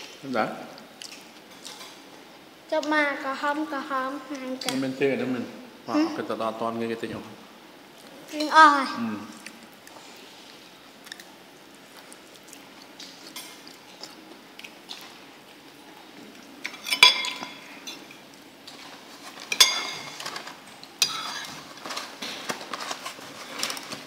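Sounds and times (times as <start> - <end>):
cutlery clinking against bowl: 16.6 - 18.2, 19.4 - 21.7.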